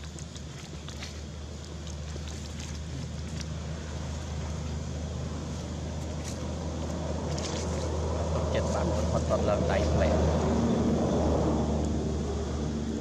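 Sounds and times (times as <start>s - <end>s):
dry leaves rustling: 0.0s - 8.0s
low outdoor rumble: 0.0s - 13.0s.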